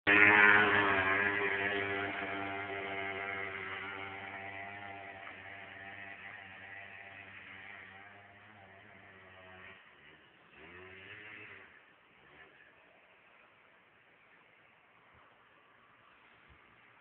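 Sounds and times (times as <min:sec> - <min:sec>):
motor scooter engine running: 0:00.1 - 0:12.8.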